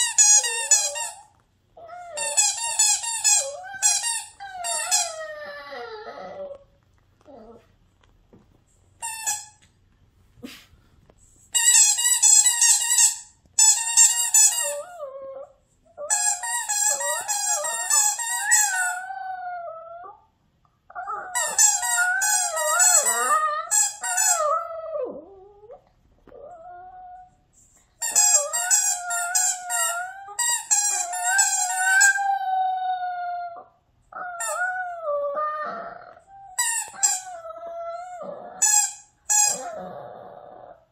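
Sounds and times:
small dog howling: 0:24.3 - 0:27.3, 0:31.0 - 0:38.6.

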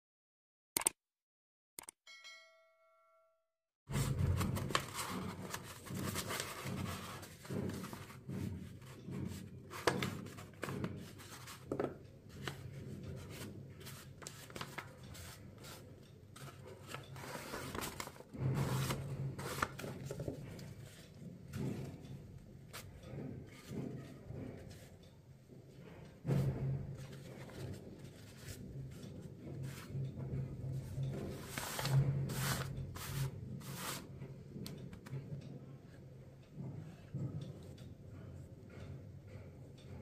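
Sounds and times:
paper rustling: 0:04.0 - 0:08.2, 0:08.8 - 0:15.8, 0:16.4 - 0:21.0, 0:31.2 - 0:34.1.

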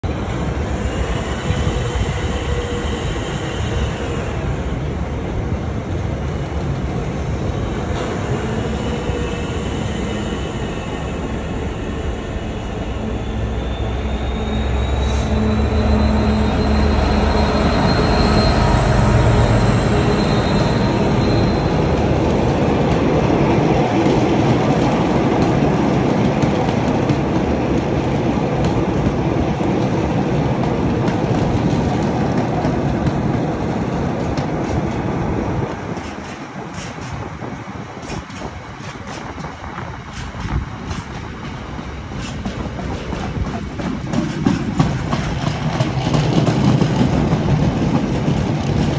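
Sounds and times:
diesel locomotive engine rumble: 0:00.0 - 0:48.9
high wheel squeal: 0:08.0 - 0:22.0.

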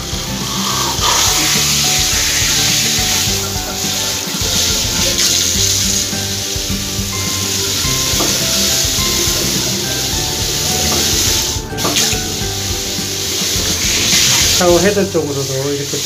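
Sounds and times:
background music: 0:00.0 - 0:16.0
water splashing into bathtub: 0:00.0 - 0:16.0.

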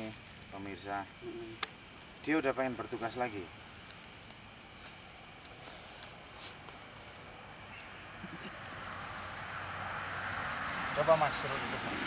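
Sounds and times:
crickets chirping: 0:00.0 - 0:12.0
vehicle approaching on road: 0:07.9 - 0:12.0.

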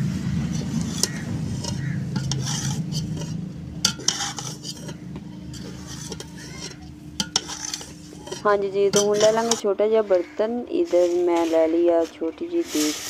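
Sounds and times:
spoon stirring and scraping pot: 0:00.4 - 0:13.0
metal clicking on pot: 0:00.6 - 0:09.7.

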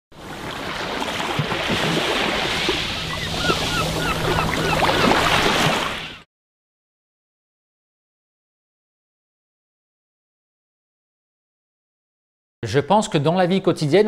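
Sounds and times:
waves and surf: 0:00.1 - 0:06.3.

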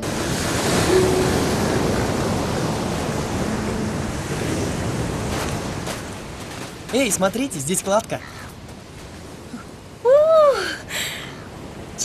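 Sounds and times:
surf breaking on beach: 0:00.0 - 0:07.4
wind: 0:00.0 - 0:12.0.

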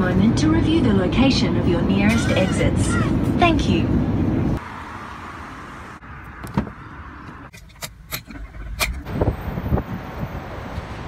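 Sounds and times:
sharp clicks and knocks: 0:06.4 - 0:09.1.

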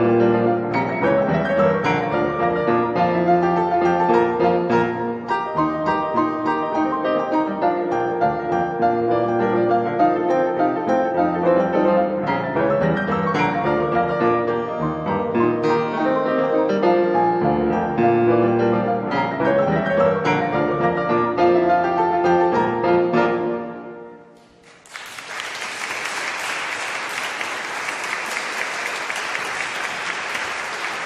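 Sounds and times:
classical piano music: 0:00.0 - 0:24.6
audience applause: 0:24.4 - 0:31.0.

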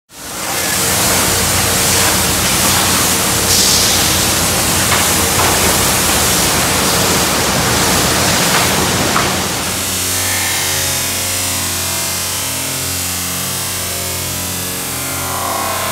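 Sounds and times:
water spray hissing on car: 0:00.4 - 0:09.9.

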